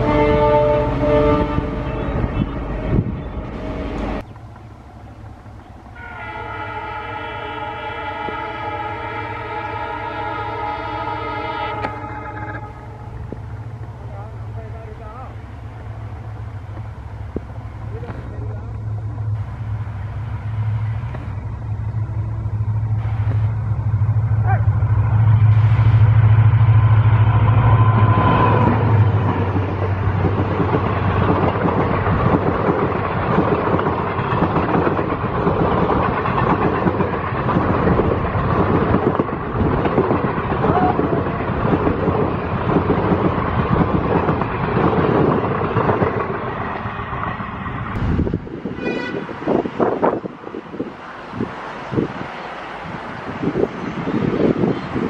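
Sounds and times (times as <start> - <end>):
diesel locomotive engine droning: 0.0 - 55.0
train wheels clickety-clack: 16.3 - 18.8, 28.0 - 50.3.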